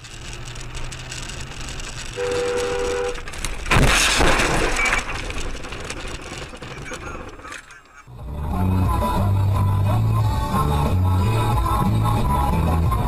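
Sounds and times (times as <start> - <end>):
car road rumble: 0.0 - 13.0
car horn blaring: 2.2 - 3.2
car crashing into snowbank: 3.2 - 7.6.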